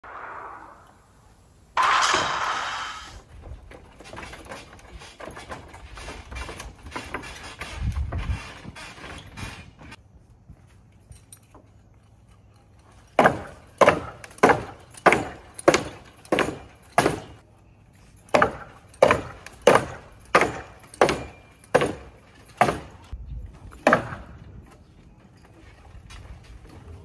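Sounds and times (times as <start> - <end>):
bar knocking into ladder rungs: 18.3 - 23.1.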